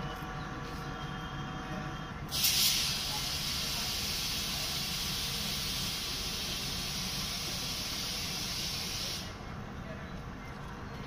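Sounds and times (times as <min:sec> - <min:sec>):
diesel engine idling: 0:00.0 - 0:11.0
compressed air hissing: 0:02.3 - 0:09.4.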